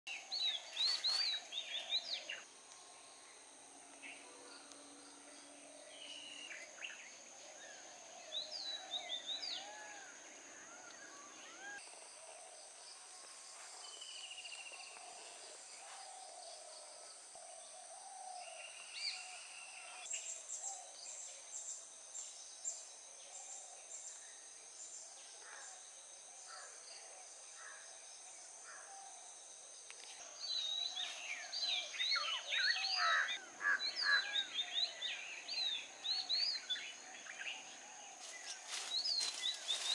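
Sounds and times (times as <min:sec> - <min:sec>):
insects droning: 0:00.1 - 0:39.9
birds chirping and whistling: 0:30.4 - 0:37.6, 0:38.3 - 0:39.9.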